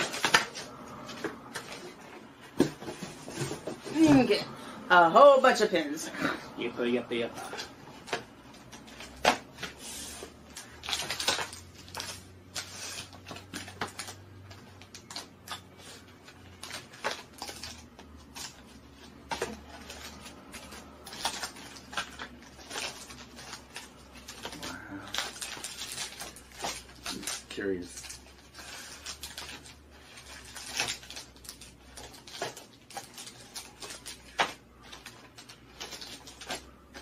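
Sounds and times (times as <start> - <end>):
cardboard boxes clicking and tapping: 0.0 - 4.4
packaging rustling: 0.0 - 5.6, 7.3 - 37.0.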